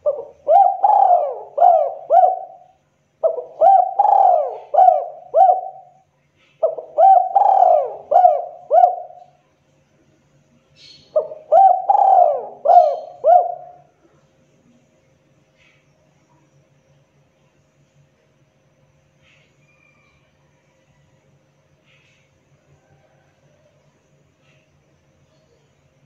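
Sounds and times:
dove cooing: 0.0 - 9.4, 11.1 - 13.9.

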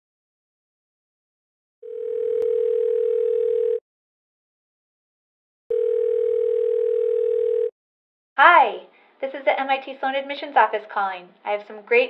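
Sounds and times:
telephone ringback tone: 1.8 - 3.8, 5.7 - 7.7.

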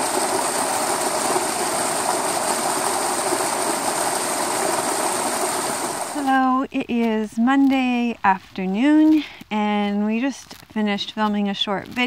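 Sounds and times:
stream cascading over rocks: 0.0 - 6.3.

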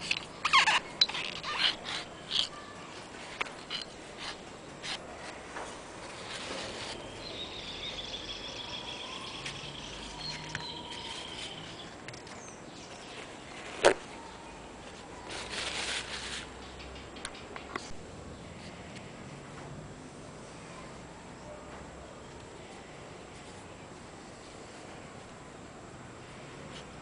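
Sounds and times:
paper rustling: 0.0 - 7.2, 10.2 - 16.6
faint high wavering call: 7.0 - 11.8.

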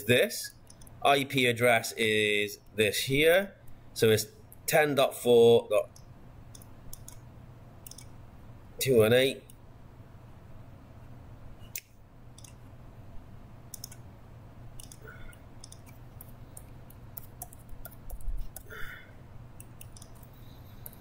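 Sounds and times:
steady low hum: 0.0 - 21.0
keyboard typing: 5.9 - 7.2, 7.8 - 8.1, 12.3 - 12.6, 13.7 - 14.1, 14.8 - 18.9, 19.6 - 21.0
mouse clicks: 5.9 - 7.2, 7.8 - 8.1, 11.7 - 12.6, 13.7 - 14.1, 14.8 - 18.7, 19.6 - 21.0.

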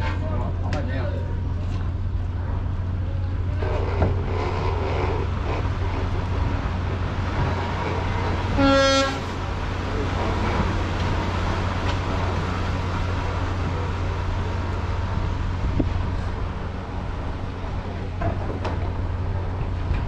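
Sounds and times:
steady low rumble: 0.0 - 20.0
short horn blast: 8.5 - 9.3.

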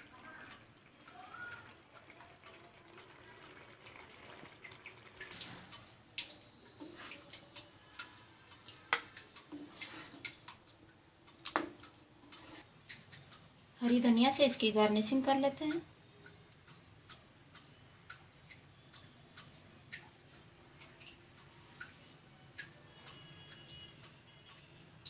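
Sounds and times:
wet sloshing and dripping: 3.4 - 13.8.

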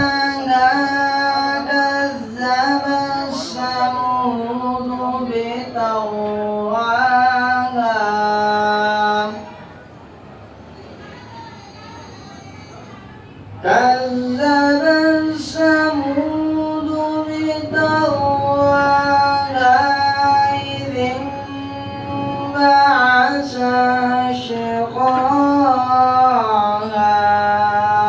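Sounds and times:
man chanting into a microphone: 0.0 - 9.5, 13.6 - 28.0.

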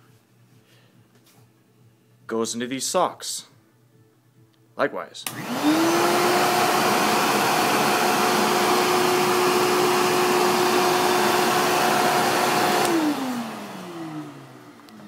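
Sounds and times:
vacuum cleaner motor whining: 5.3 - 15.0.

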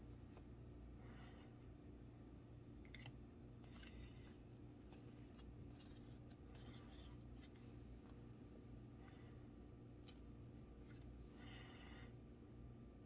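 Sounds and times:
low room hum: 0.0 - 13.0
trading cards shuffling: 2.9 - 8.2.

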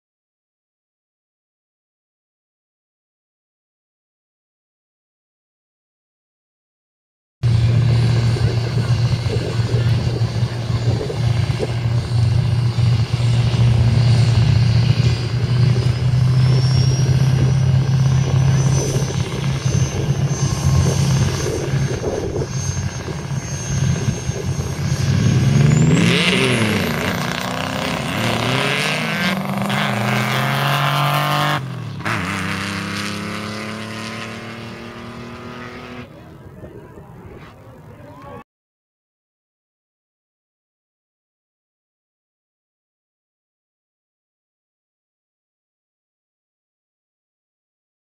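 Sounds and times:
high whine: 7.4 - 38.4
racing engines revving: 7.5 - 36.3.

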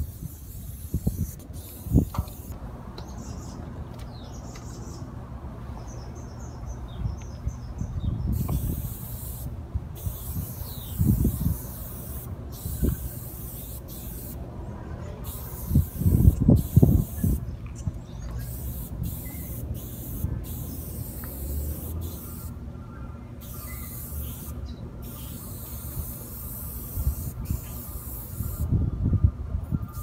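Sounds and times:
spray paint can hissing: 0.0 - 2.6, 8.3 - 14.4, 15.3 - 17.4, 18.4 - 22.5, 23.4 - 28.7
faint bird chirps: 17.0 - 19.6, 22.2 - 25.7.

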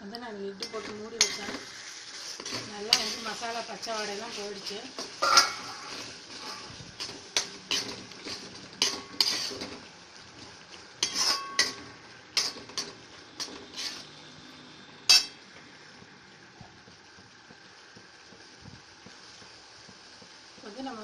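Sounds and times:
metal spoon scraping pan: 0.6 - 9.9, 11.0 - 14.1, 15.1 - 15.4.

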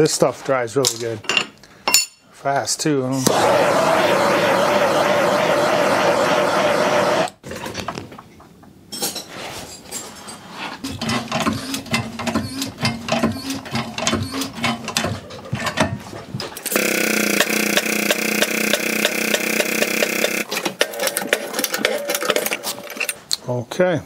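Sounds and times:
loud steady blowing: 3.2 - 7.4, 16.7 - 20.5
motor humming and ticking: 16.6 - 20.5.

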